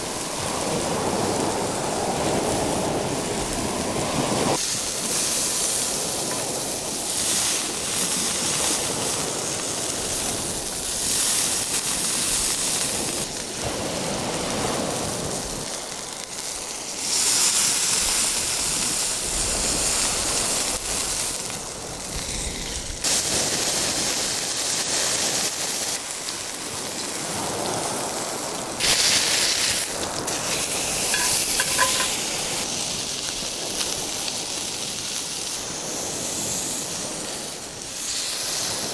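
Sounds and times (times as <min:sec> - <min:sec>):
steak sizzling in skillet: 0:04.5 - 0:13.4, 0:28.8 - 0:38.9.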